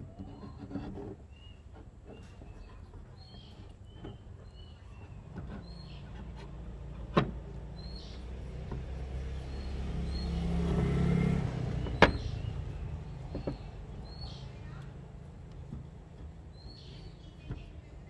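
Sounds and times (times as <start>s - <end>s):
motor vehicle passing: 5.1s - 17.6s
sharp knocks: 11.8s - 12.4s.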